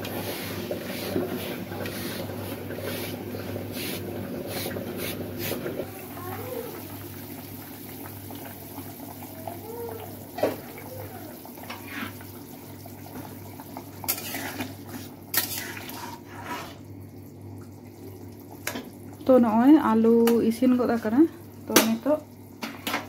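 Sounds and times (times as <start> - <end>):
metal spatula scraping a pan: 14.1 - 16.8.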